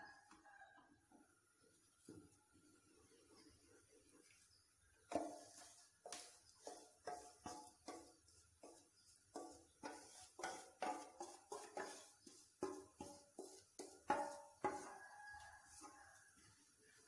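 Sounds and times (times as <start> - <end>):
wooden spatula clinking metal bowl: 5.1 - 16.5.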